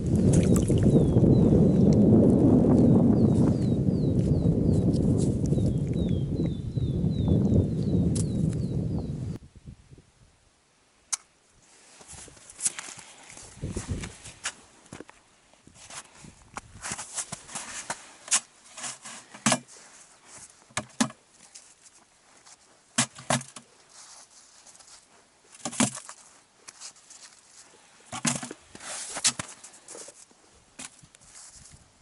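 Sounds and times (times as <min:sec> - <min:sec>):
fish knocking into plastic canister: 0:28.1 - 0:28.6.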